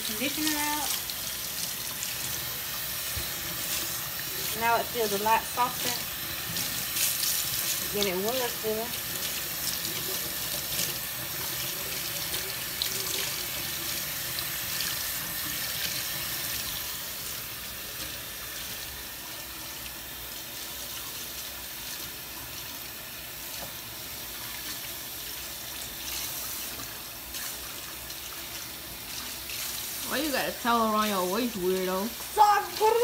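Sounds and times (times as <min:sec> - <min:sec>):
faucet running into metal sink: 0:00.0 - 0:33.0.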